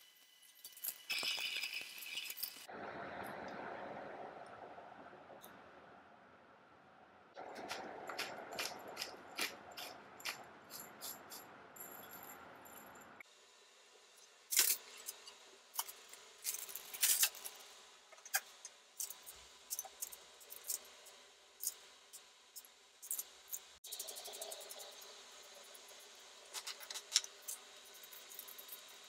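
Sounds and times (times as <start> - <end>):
aluminium foil crinkling: 15.8 - 17.6.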